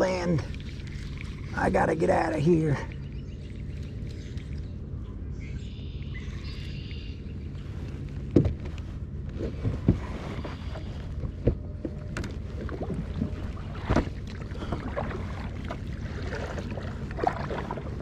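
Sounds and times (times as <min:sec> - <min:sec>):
paddle strokes in water: 0:07.6 - 0:18.0.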